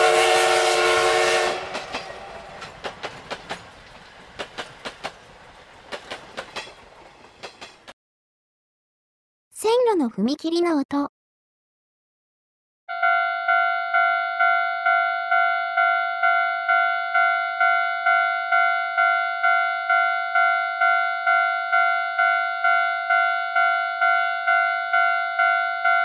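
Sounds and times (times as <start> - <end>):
level-crossing warning bell ringing: 12.9 - 26.0.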